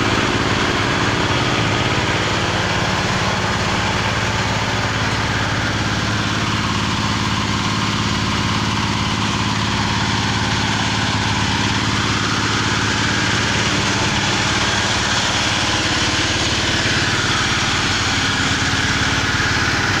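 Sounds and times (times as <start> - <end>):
small petrol engine running: 0.0 - 20.0.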